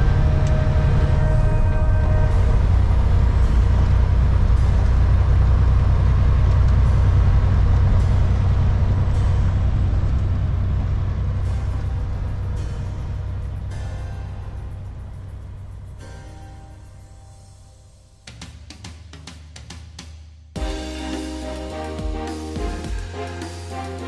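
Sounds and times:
diesel truck engine droning: 0.0s - 17.6s
music: 0.0s - 24.0s.

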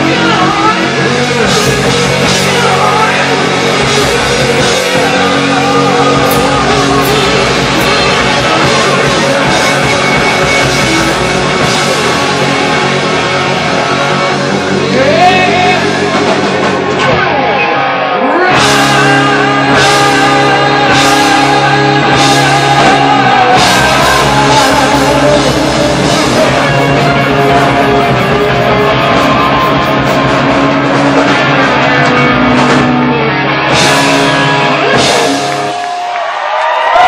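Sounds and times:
person singing: 0.0s - 12.6s, 13.6s - 16.4s, 17.0s - 30.5s
hard rock band playing: 0.0s - 37.0s.

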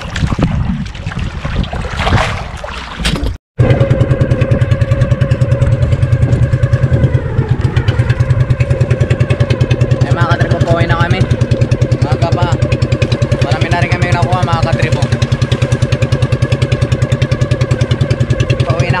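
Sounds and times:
water slapping around boat: 0.0s - 19.0s
wind: 0.0s - 19.0s
small boat engine running: 3.6s - 19.0s.

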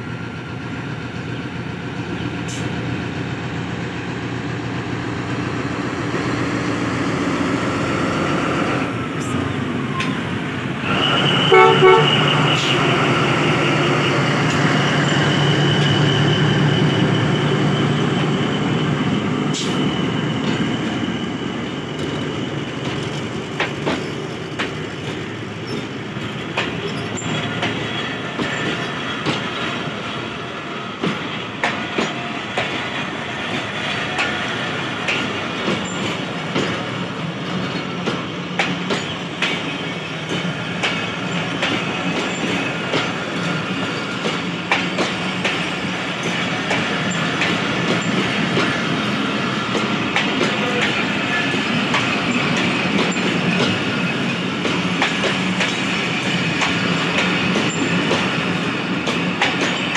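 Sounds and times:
diesel locomotive engine running: 0.0s - 59.9s
wheel squeal: 9.9s - 29.9s
locomotive horn toot: 10.9s - 12.9s
train wheels clicking over rail joints: 12.2s - 59.9s.

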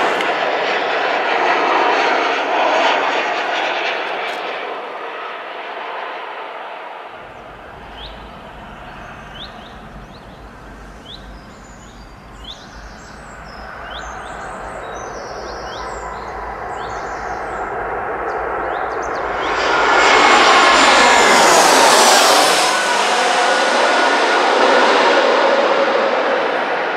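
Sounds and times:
jet airliner passing overhead: 0.0s - 26.9s
distant rushing: 7.1s - 26.9s
birds chirping: 7.2s - 23.6s.

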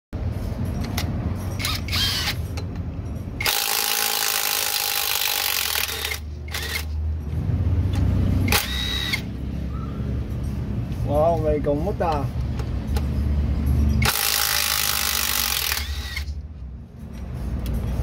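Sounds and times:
impact wrench bursts: 1.6s - 2.4s, 3.4s - 7.0s, 8.4s - 9.3s, 14.0s - 16.4s.

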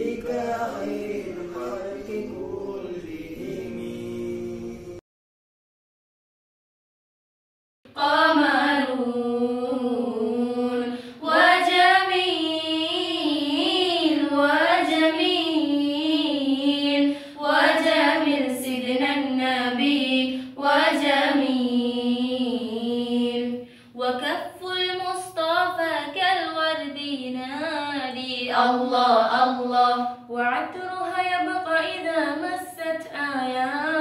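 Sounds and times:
girls singing in unison: 7.9s - 34.0s.

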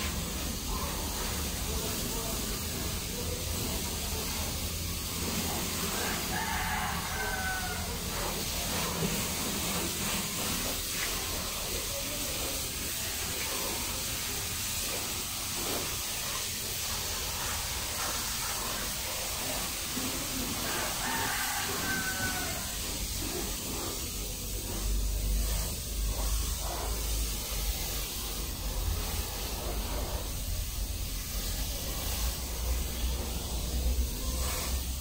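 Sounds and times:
hose nozzle spraying water: 0.0s - 35.0s
rooster crowing: 5.9s - 8.3s, 20.6s - 23.0s.

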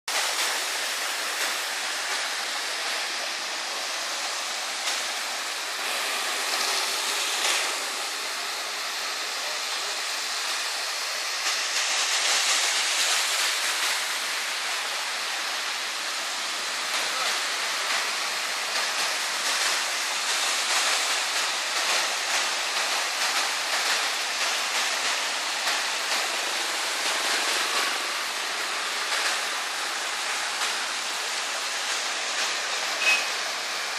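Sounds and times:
rushing water: 0.1s - 33.9s.

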